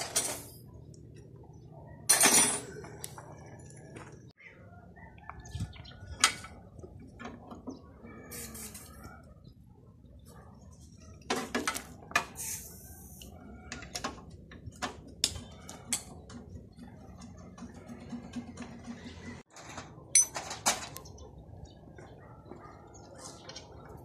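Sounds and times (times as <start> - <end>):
metal engine parts clinking: 2.1 - 3.1, 19.5 - 21.0.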